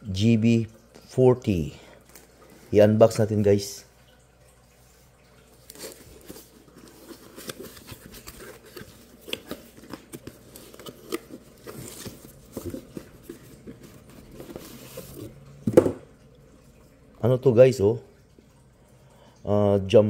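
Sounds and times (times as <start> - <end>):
cardboard scraping and rustling: 5.7 - 15.3.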